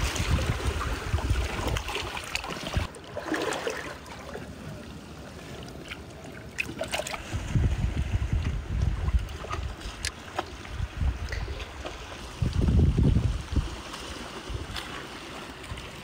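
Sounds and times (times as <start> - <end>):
wind buffeting microphone: 0.0 - 2.9, 7.2 - 15.0.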